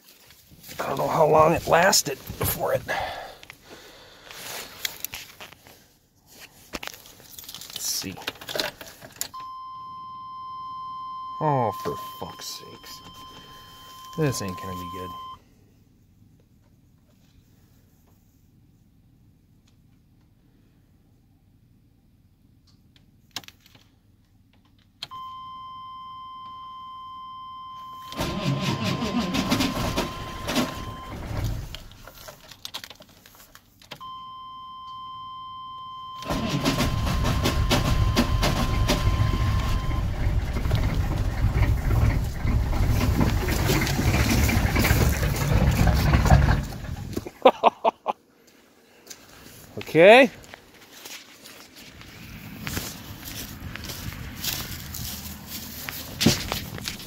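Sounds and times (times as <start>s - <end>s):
dash warning tone: 9.4s - 15.4s, 25.1s - 32.0s, 34.0s - 43.8s
diesel engine cranking: 28.0s - 33.0s, 36.2s - 47.3s
diesel engine running rough: 28.1s - 32.1s, 36.3s - 47.2s.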